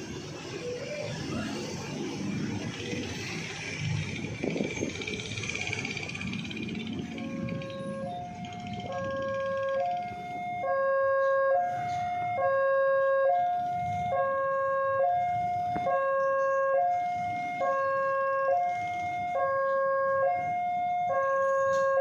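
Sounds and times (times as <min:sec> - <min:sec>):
level crossing two-tone alarm: 0:06.9 - 0:22.0.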